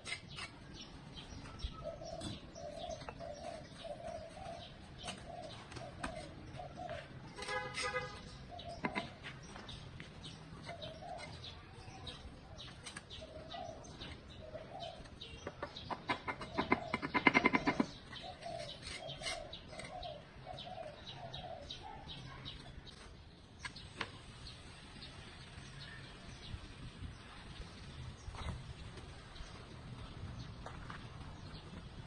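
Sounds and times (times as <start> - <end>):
trowel tapping and scraping bricks: 0.0 - 1.3, 2.0 - 13.4, 14.0 - 20.6
birds calling: 0.0 - 32.0.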